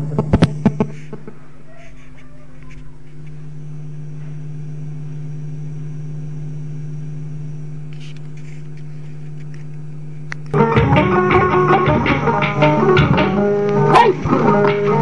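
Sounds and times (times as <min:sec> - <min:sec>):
plucked-string music with percussion: 0:10.6 - 0:15.0.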